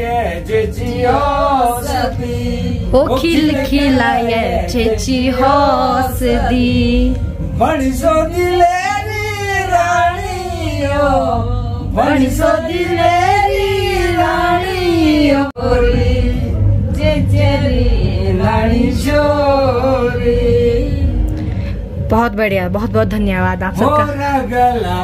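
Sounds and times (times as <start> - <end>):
woman singing unaccompanied: 2.8 - 7.2.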